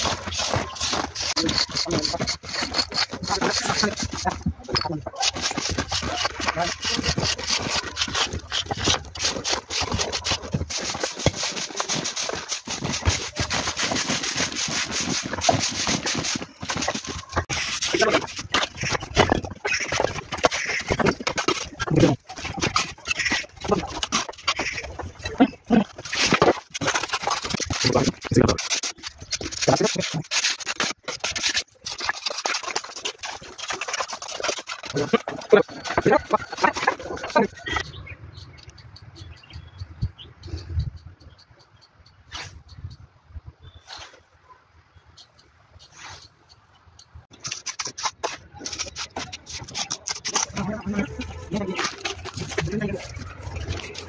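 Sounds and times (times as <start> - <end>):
broom brushing brickwork: 0.0 - 37.7, 47.3 - 54.0
trowel scraping mortar joints: 0.0 - 37.9, 47.3 - 54.0.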